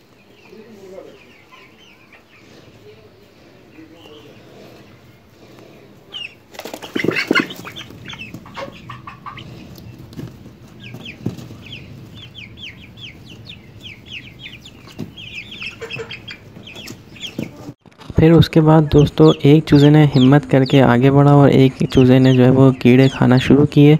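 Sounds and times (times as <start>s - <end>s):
chicks peeping: 0.0s - 23.9s
wing flapping and scuffling: 5.5s - 18.2s.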